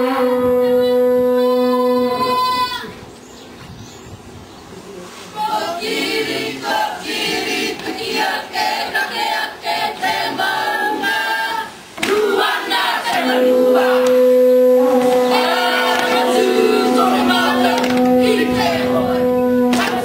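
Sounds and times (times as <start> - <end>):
long steady horn note: 0.0 - 2.6, 13.0 - 20.0
group of voices singing: 5.4 - 20.0.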